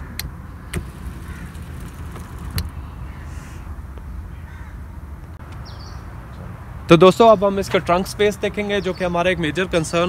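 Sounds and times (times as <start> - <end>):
sharp clicks: 0.1 - 2.8.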